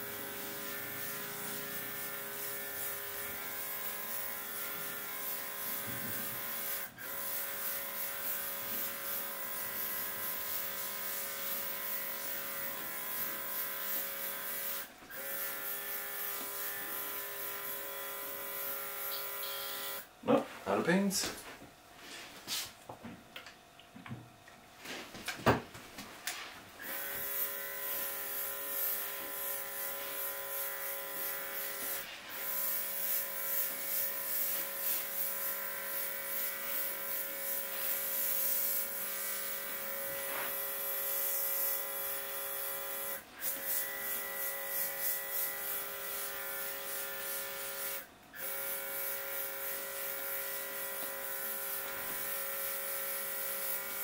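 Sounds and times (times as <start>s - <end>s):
airbrush spraying hiss: 8.0s - 12.6s.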